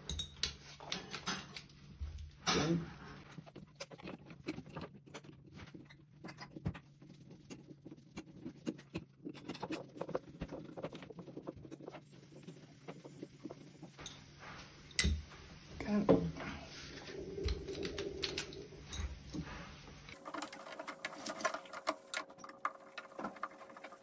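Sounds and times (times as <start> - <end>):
plastic and metal scraping: 20.1 - 24.0.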